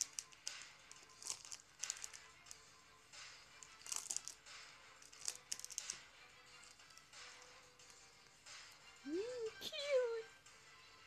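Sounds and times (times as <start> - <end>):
plastic packaging crinkling: 0.0 - 2.6, 3.6 - 4.4, 5.0 - 6.8
quiet background music: 0.0 - 11.0.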